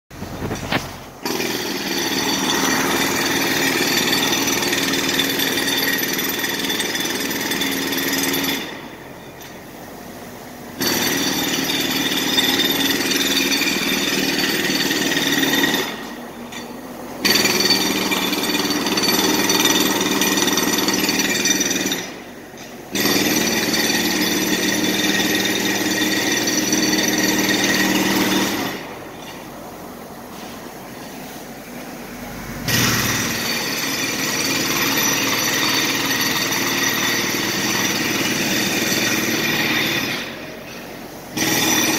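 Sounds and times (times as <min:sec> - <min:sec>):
jackhammer hammering: 0:00.2 - 0:09.8, 0:10.6 - 0:29.5, 0:32.6 - 0:41.9.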